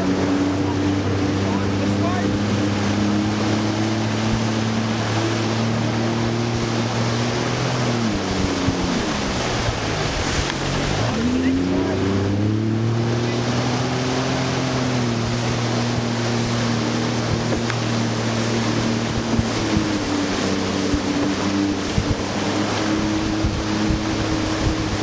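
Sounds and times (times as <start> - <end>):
jet ski engine running: 0.0 - 25.0
wind rushing past microphone: 0.0 - 25.0.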